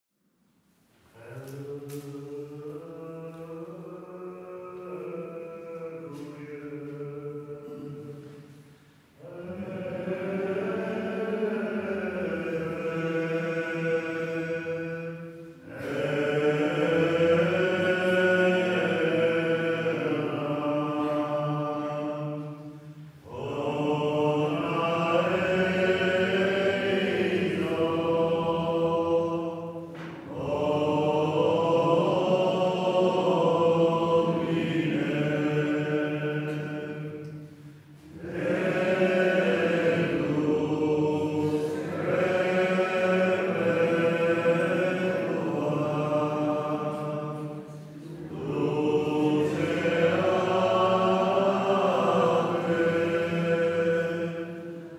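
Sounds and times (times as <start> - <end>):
slow sung chant: 0.4 - 54.9.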